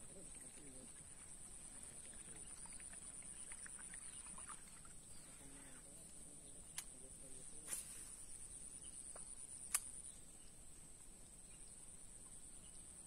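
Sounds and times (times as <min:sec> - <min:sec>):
faint chirps: 0:00.0 - 0:13.0
faint high-pitched whine: 0:00.0 - 0:13.0
sharp click: 0:06.7 - 0:07.0, 0:09.2 - 0:10.0.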